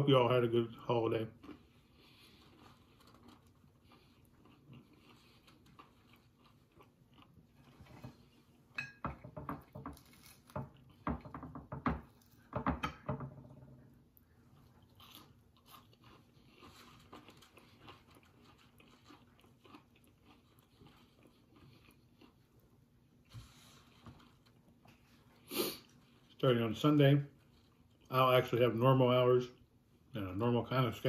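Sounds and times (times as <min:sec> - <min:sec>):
person chewing food: 0:01.3 - 0:11.4, 0:13.8 - 0:26.4, 0:27.3 - 0:28.1.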